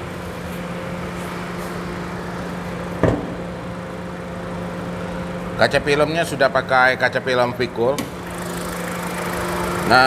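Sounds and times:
air conditioning running: 0:00.0 - 0:10.0
thump: 0:03.0 - 0:03.4.

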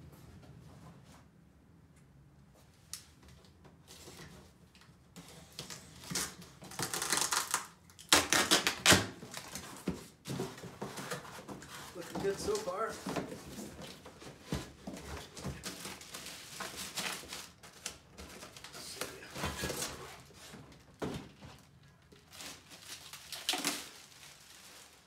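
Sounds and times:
packaging rustling: 0:05.7 - 0:25.0.

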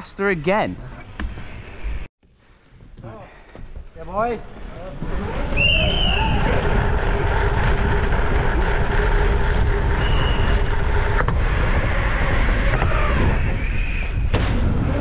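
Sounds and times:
bike ride rumble: 0:00.0 - 0:15.0
wind rushing over microphone: 0:05.1 - 0:15.0.

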